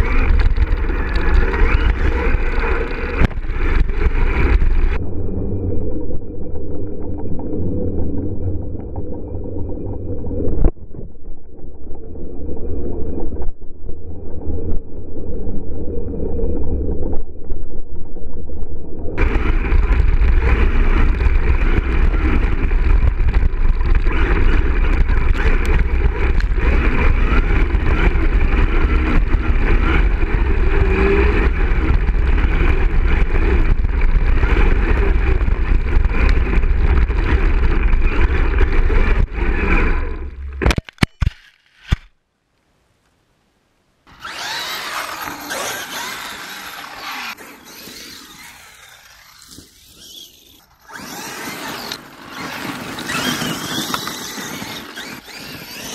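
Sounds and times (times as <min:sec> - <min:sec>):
electric motor and drivetrain running: 0:00.0 - 0:05.7, 0:19.2 - 0:42.1, 0:44.1 - 0:55.9
heavy low rumble: 0:00.0 - 0:40.7.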